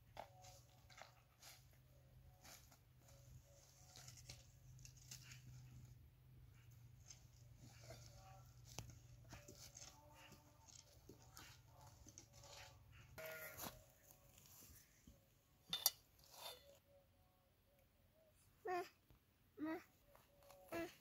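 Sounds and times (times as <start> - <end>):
steel bowls and metal tray clinking: 15.7 - 16.8.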